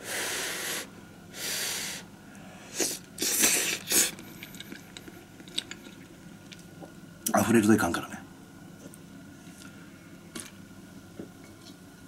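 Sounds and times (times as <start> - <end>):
breathy puffs of air: 0.0 - 4.2.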